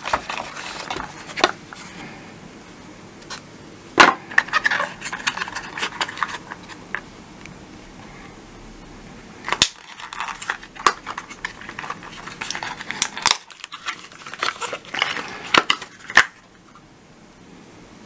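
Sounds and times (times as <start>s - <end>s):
packaging rustling and crinkling: 0.0s - 2.0s, 4.3s - 7.0s, 9.4s - 16.5s.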